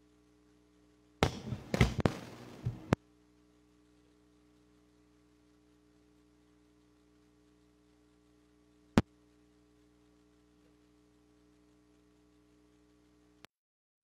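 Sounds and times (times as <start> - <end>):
faint steady hum: 0.0 - 13.5
microphone knocks and crackling: 1.2 - 3.0.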